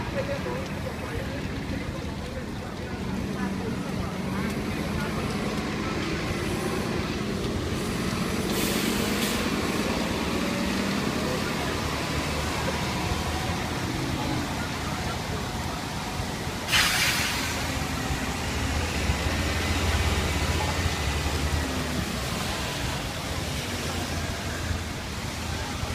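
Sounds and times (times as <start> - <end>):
bus engine rumbling: 0.0 - 25.9
wet street traffic: 0.0 - 25.9
sharp hiss: 8.5 - 9.5, 16.7 - 17.7.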